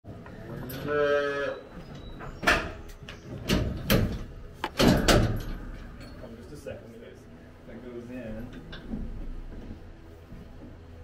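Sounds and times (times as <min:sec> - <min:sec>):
metal cattle chute clanking: 0:00.6 - 0:06.6.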